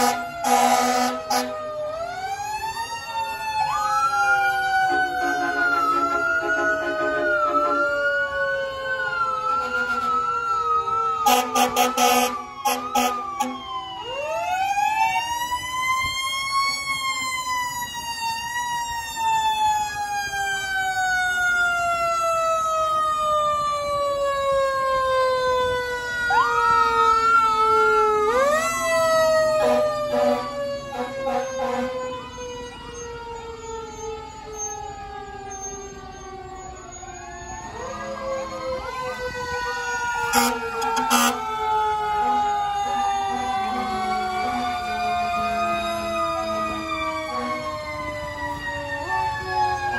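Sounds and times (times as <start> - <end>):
electronic siren warbling: 2.1 - 17.1, 26.1 - 49.9.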